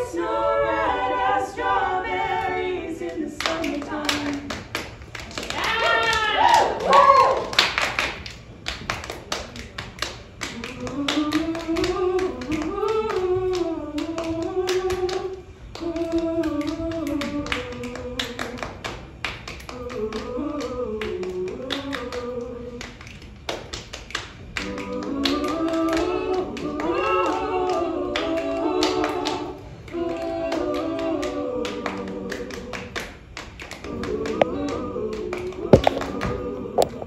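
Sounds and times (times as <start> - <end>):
women singing a cappella harmony: 0.0 - 37.0
hand claps and leg pats: 3.4 - 15.2, 22.8 - 30.0, 30.8 - 37.0.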